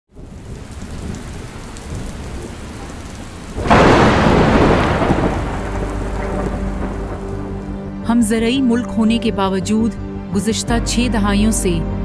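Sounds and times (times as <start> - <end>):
steady rain: 0.1 - 7.9
rumbling thunder: 0.1 - 8.0
loud thunderclap: 0.2 - 7.8.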